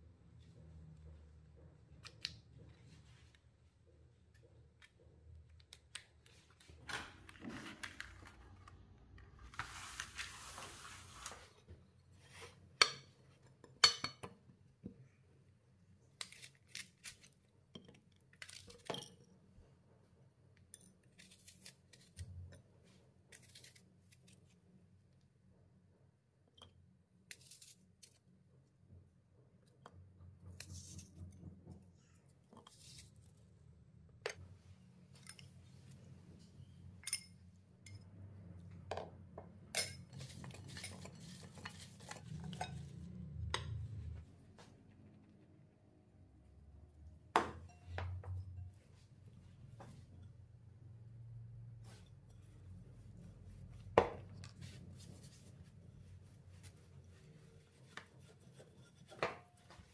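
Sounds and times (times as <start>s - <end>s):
rustling noise: 9.3s - 12.6s
utensils clinking on dishes: 39.7s - 43.1s.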